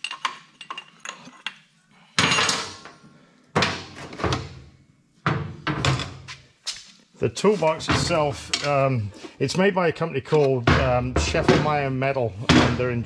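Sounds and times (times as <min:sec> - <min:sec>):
metal toolbox clunking on steel: 0:10.6 - 0:11.8.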